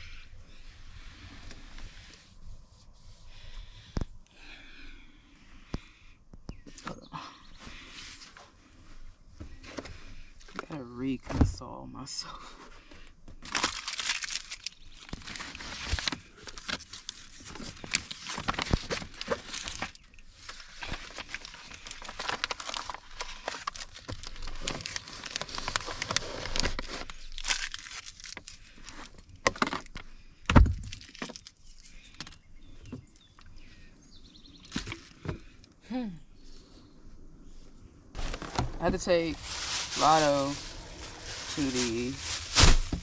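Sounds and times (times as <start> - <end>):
crinkling handling noise: 12.5 - 33.8, 34.6 - 35.8, 37.5 - 43.0.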